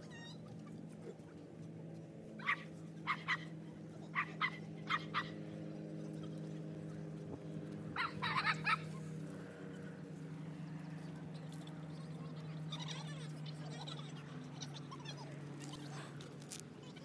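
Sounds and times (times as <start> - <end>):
dog barking: 2.4 - 3.5, 4.2 - 5.4, 8.0 - 8.8.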